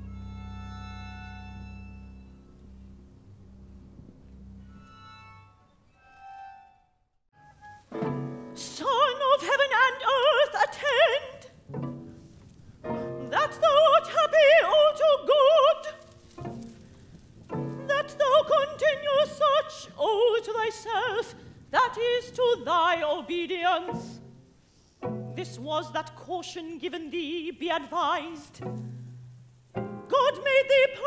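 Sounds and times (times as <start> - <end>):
low sustained string notes: 0.0 - 9.4, 11.6 - 19.5, 23.6 - 26.4, 28.5 - 30.4
woman singing operatically: 8.6 - 11.5, 13.2 - 16.0, 17.8 - 24.2, 25.4 - 28.6, 30.1 - 31.0.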